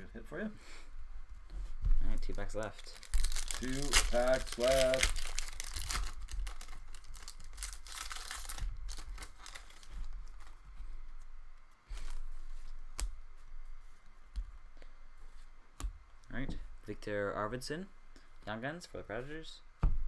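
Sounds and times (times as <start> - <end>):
cards rustling and ticking: 2.1 - 13.2
foil wrapper crinkling and tearing: 2.2 - 10.4.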